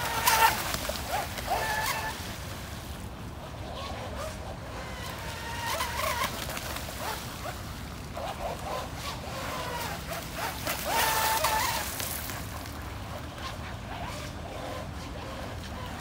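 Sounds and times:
model boat motor whining: 0.0s - 16.0s.

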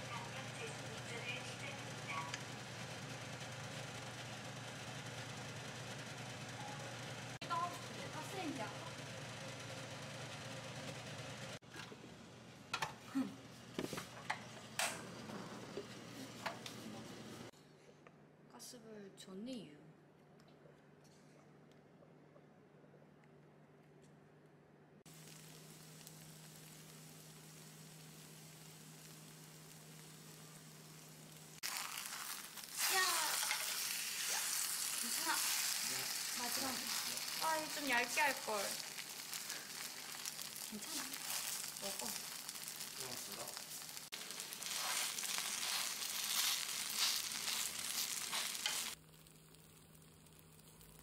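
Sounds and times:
pancake batter sizzling: 25.1s - 51.0s.

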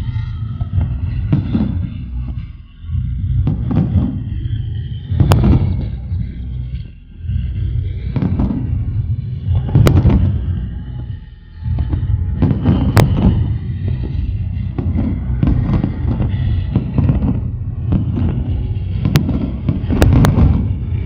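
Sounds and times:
firework shells booming: 0.8s - 2.1s, 3.4s - 4.3s, 5.1s - 6.1s, 8.1s - 8.8s, 9.5s - 10.6s, 11.8s - 21.0s.

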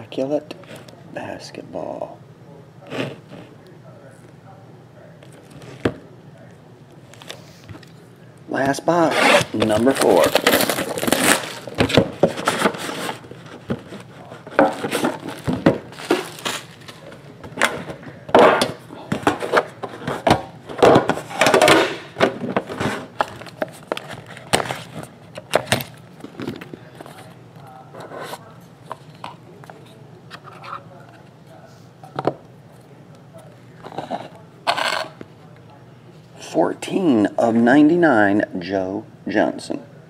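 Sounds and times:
plastic wrap crinkling: 9.4s - 17.4s.

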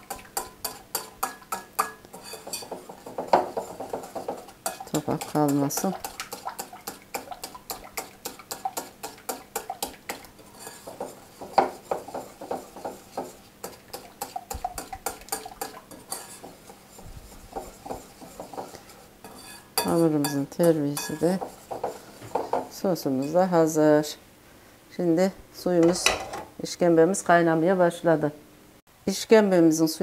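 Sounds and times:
whisk clicking against glass bowl: 0.1s - 10.3s.

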